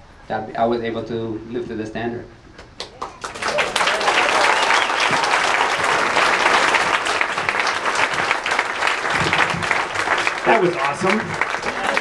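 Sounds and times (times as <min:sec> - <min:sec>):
large crowd applauding: 0:02.8 - 0:12.0.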